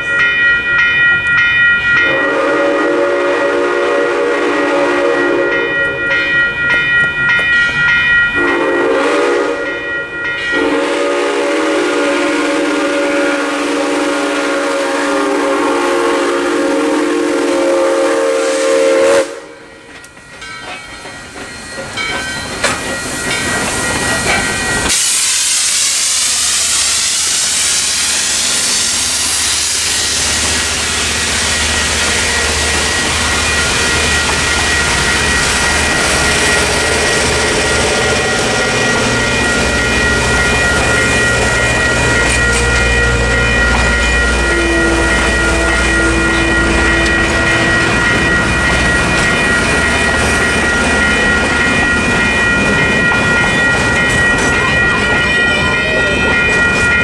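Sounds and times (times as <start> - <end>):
crossing bell ringing: 0.0 - 57.0
train passing with rail clatter: 0.0 - 57.0
steam locomotive whistle: 2.0 - 6.0, 8.4 - 9.8, 10.5 - 19.8, 24.2 - 50.4.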